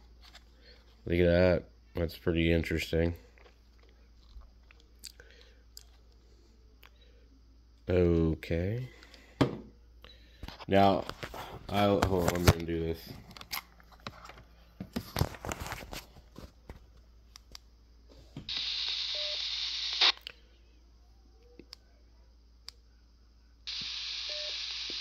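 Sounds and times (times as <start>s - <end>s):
radio static hiss: 18.5s - 20.2s, 23.7s - 25.0s.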